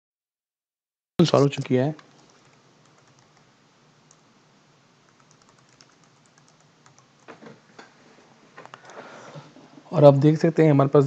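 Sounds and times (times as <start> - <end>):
typing on computer keyboard: 2.0 - 3.5, 5.1 - 7.4.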